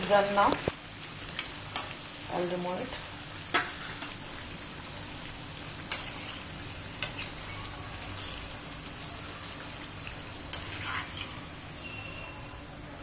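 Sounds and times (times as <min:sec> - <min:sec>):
food deep-frying in oil: 0:00.0 - 0:13.0
spoon scraping pan: 0:02.9 - 0:04.2, 0:05.8 - 0:08.6, 0:10.1 - 0:12.5.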